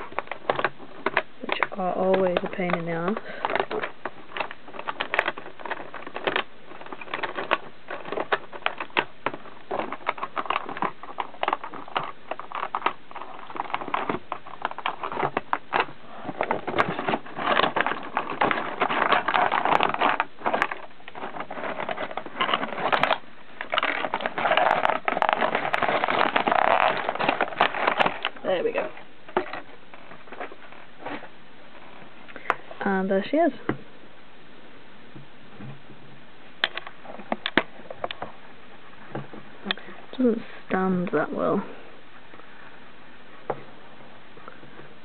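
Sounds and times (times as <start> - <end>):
plastic packaging crinkling: 0.0 - 33.0.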